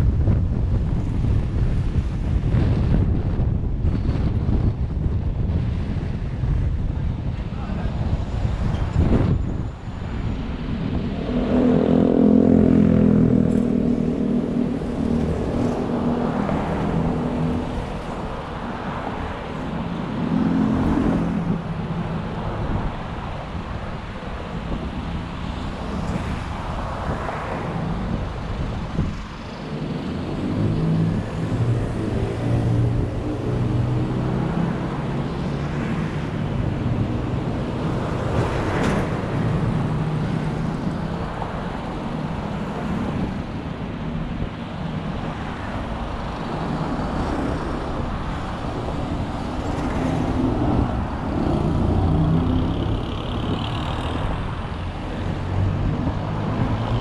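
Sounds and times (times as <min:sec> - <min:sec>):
passing traffic: 0:00.0 - 0:57.0
tyre and road noise: 0:00.0 - 0:57.0.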